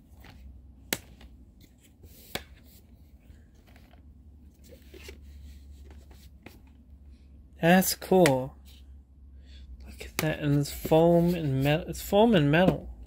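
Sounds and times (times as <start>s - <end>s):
soft rubbing and rustling: 1.3s - 6.9s, 9.9s - 12.0s.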